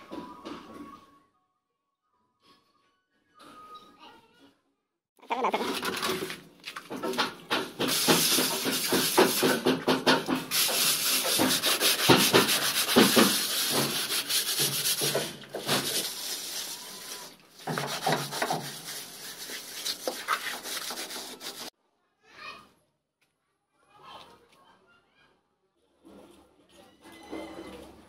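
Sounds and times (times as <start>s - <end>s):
trowel scraping wet cement: 7.8s - 9.9s, 10.5s - 21.7s.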